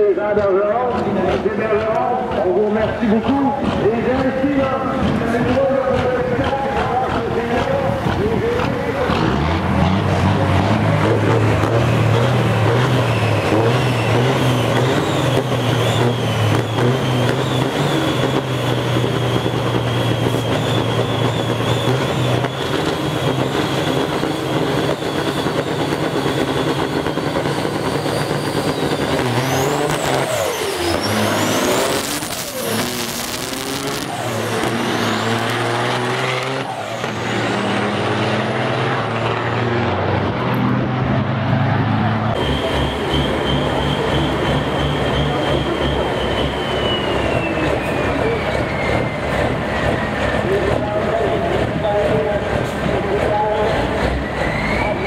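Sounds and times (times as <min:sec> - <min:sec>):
truck diesel engines revving: 0:00.0 - 0:55.0
high whistle: 0:13.0 - 0:35.2, 0:42.4 - 0:50.2.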